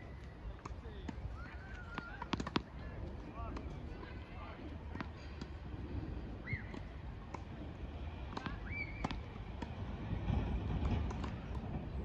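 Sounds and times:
tennis ball bouncing on hard court: 0:01.9 - 0:02.8, 0:04.9 - 0:05.5, 0:08.3 - 0:09.8.

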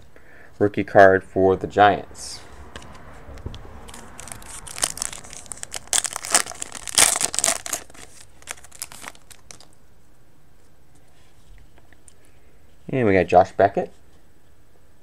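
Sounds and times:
foil wrapper crinkling and tearing: 0:03.9 - 0:09.8.

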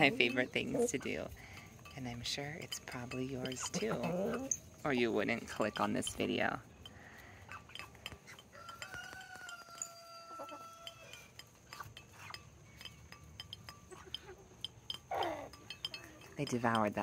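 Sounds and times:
chickens pecking at a dish: 0:00.0 - 0:17.0
faint rooster crowing: 0:08.4 - 0:11.4.

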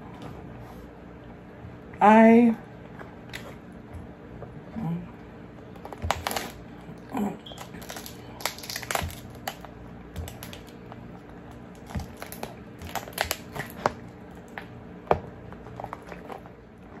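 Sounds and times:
crab shell cracking: 0:05.6 - 0:14.8.

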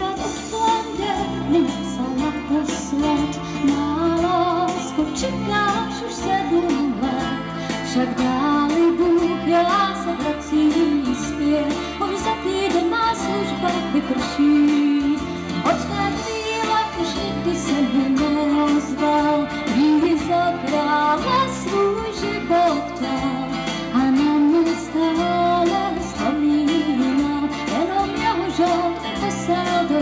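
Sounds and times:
woman singing: 0:00.0 - 0:30.0.

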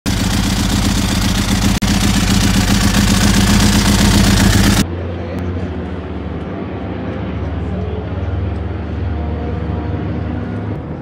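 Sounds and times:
motorcycle engine idling: 0:00.0 - 0:04.8.

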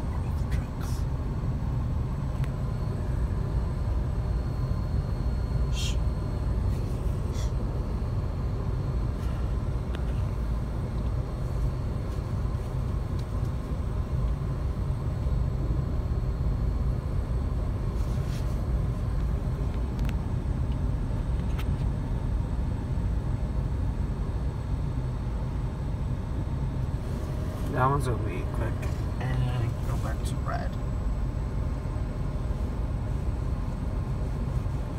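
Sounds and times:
idling road traffic rumble: 0:00.0 - 0:34.9.

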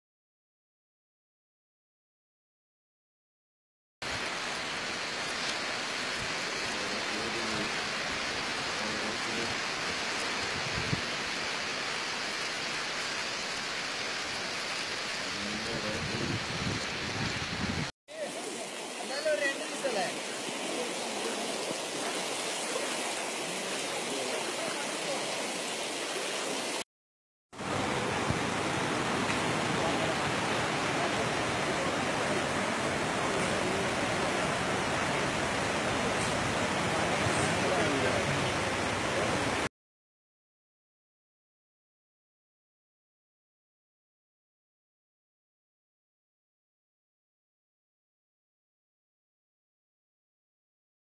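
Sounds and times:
flooded river rushing: 0:04.0 - 0:26.8, 0:27.6 - 0:39.7
heavy rain hiss: 0:04.1 - 0:26.8, 0:27.6 - 0:39.7.

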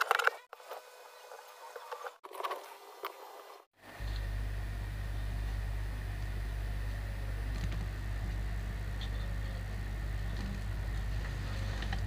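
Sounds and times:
steady low hum: 0:03.8 - 0:12.0.

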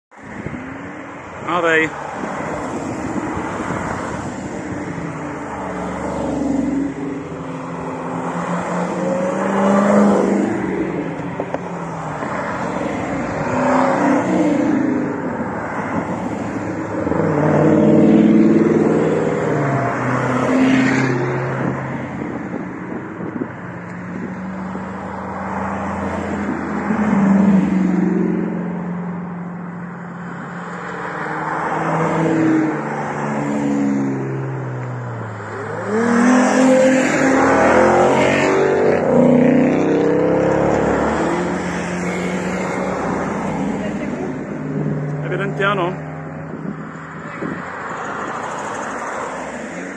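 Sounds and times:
muscle cars driving past: 0:00.3 - 0:49.9.

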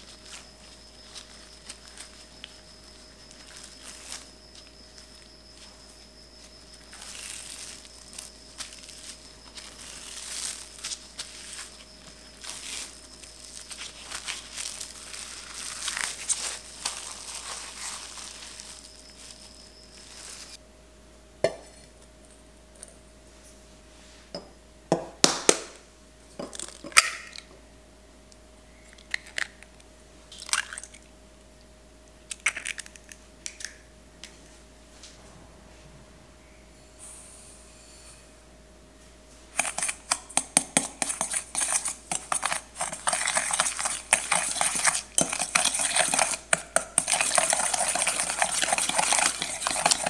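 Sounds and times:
cling film crinkling: 0:06.7 - 0:20.6
eggs cracked into metal bowl: 0:26.4 - 0:27.5, 0:32.3 - 0:33.8.

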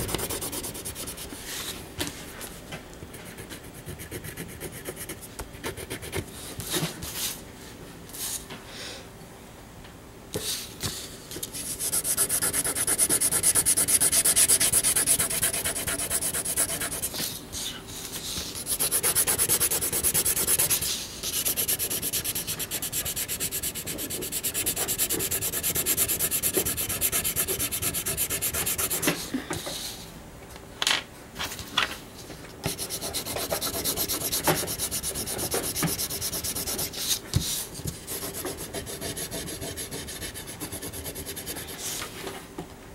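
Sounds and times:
drawing tool scratching paper: 0:00.0 - 0:01.4, 0:03.3 - 0:06.2, 0:11.5 - 0:17.2, 0:18.6 - 0:29.2, 0:32.7 - 0:37.2, 0:38.0 - 0:41.8.

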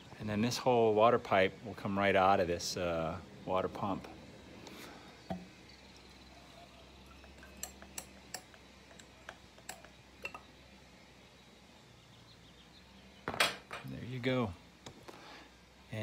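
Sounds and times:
metal clicks and taps: 0:07.3 - 0:10.4.

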